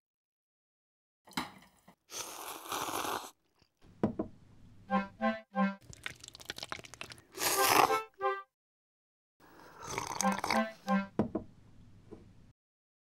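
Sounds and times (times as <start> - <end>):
noodle slurping: 2.1 - 3.8, 5.8 - 8.1, 9.6 - 10.8
knock: 4.0 - 4.4, 11.2 - 11.5
comic sound effect notes: 4.9 - 5.8, 7.5 - 8.5, 10.2 - 11.1.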